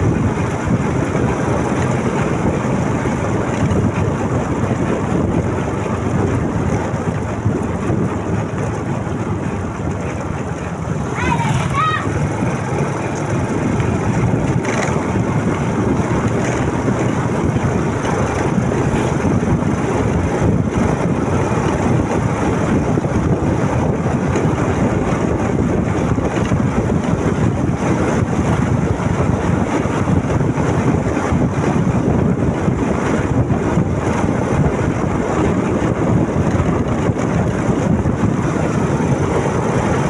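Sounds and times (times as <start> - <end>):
motorcycle road and engine noise: 0.0 - 40.0
wind rumble on microphone: 0.0 - 40.0.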